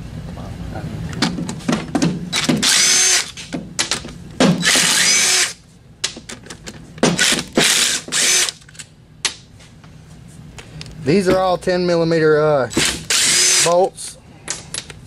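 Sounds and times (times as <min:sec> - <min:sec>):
cordless drill whining: 0:02.4 - 0:03.3, 0:04.6 - 0:05.6, 0:07.2 - 0:08.6, 0:13.0 - 0:13.8.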